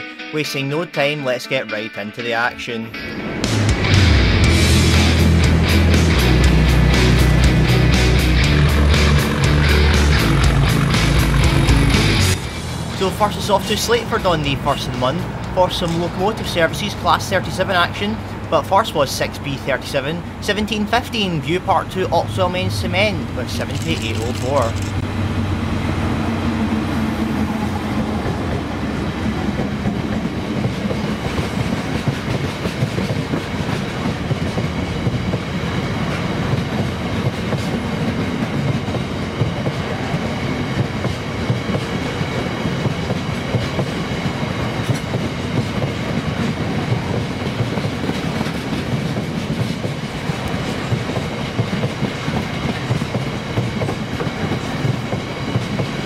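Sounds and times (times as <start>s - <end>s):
diesel locomotive engine: 2.9s - 56.0s
train wheels clattering over rail joints: 28.0s - 56.0s.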